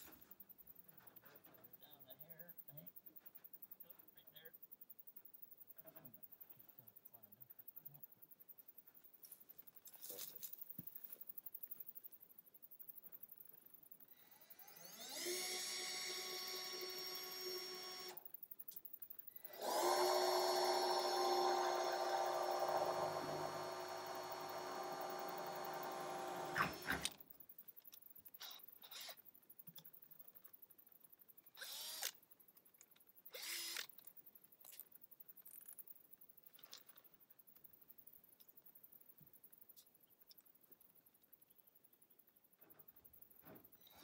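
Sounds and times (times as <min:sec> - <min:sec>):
cordless drill whining: 0:14.2 - 0:18.2, 0:19.4 - 0:27.2, 0:28.4 - 0:29.2, 0:31.6 - 0:32.2, 0:33.3 - 0:33.9.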